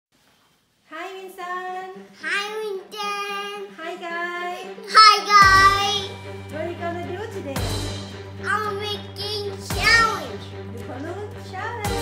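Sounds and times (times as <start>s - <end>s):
child singing: 4.8s - 6.1s.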